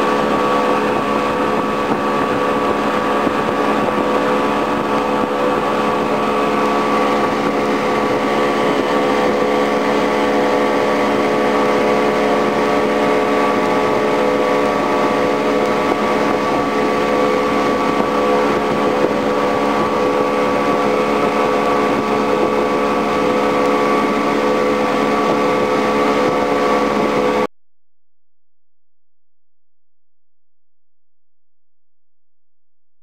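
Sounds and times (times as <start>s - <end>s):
motorboat engine running: 0.0s - 27.5s
rushing water: 0.0s - 27.5s
wind on microphone: 0.0s - 27.5s.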